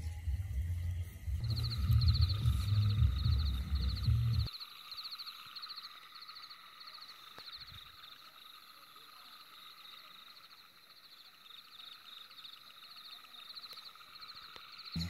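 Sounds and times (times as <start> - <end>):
low rumble: 0.0 - 4.5
steady drone: 0.0 - 4.5
high chirping trills: 0.7 - 15.0.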